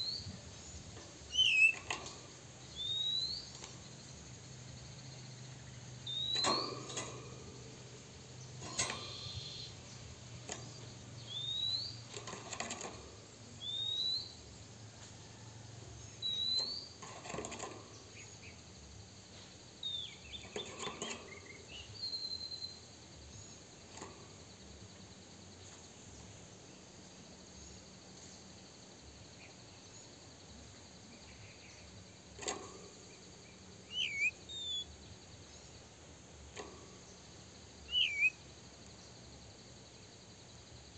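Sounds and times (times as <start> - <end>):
bird whistling upslurred notes: 1.3 - 1.8, 2.8 - 3.5, 6.1 - 6.6, 11.3 - 12.0, 33.9 - 34.9, 37.9 - 38.4
soft thumps in cage: 6.3 - 7.9.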